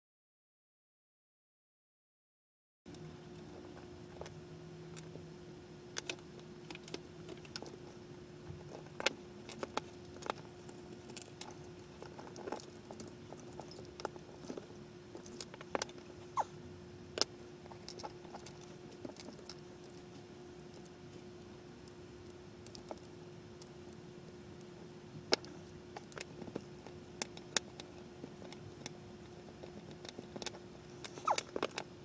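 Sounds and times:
faint hum: 0:02.9 - 0:32.0
small metal clicks and clinks: 0:08.7 - 0:16.1.

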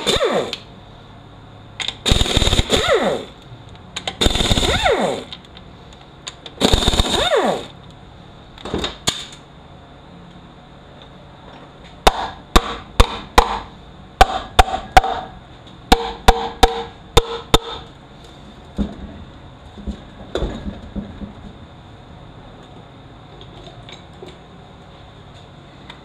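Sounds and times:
air tool whine: 0:00.0 - 0:00.7, 0:02.0 - 0:03.4, 0:04.2 - 0:05.3, 0:06.6 - 0:07.8.

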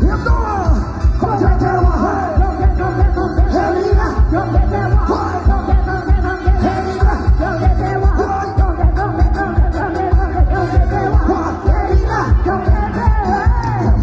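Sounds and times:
heavy fast bass beat: 0:00.0 - 0:14.0
loud dance music with singing: 0:00.0 - 0:14.0.

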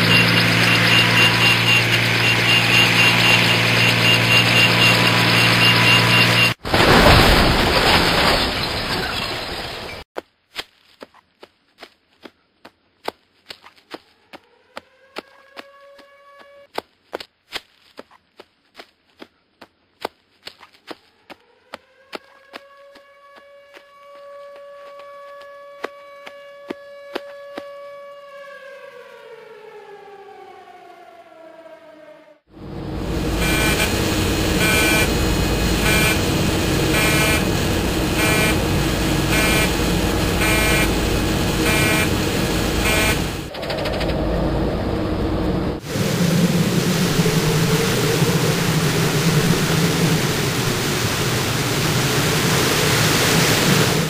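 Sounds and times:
air raid siren: 0:00.0 - 0:07.0, 0:14.0 - 0:16.7, 0:21.0 - 0:54.0
low aircraft drone: 0:00.0 - 0:07.0, 0:21.5 - 0:54.0.

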